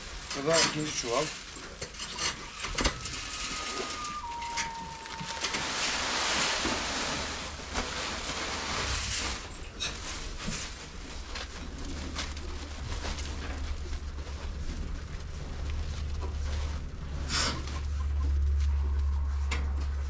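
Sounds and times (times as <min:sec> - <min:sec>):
rustling: 0:00.0 - 0:20.0
grain pouring from a sack: 0:03.1 - 0:17.7.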